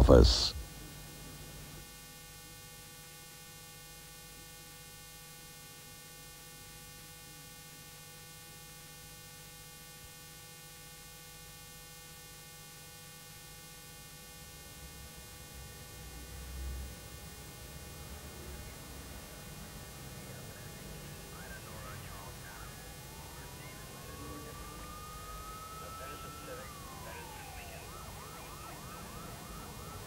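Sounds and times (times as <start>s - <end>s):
tape hum and hiss: 0.0s - 30.0s
thin steady tones: 16.9s - 30.0s.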